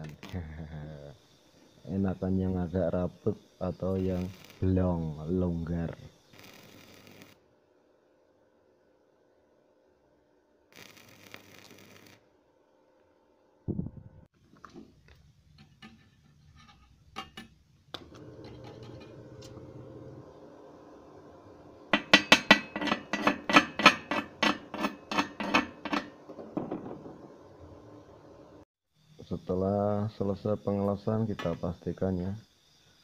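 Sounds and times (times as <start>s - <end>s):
low steady hum: 13.4s - 28.6s.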